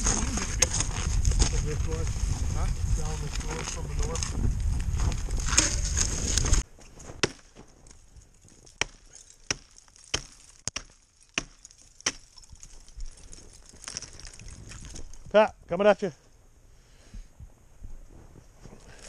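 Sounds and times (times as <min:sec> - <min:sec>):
axe chopping into tree: 0:07.1 - 0:07.6, 0:08.7 - 0:12.3.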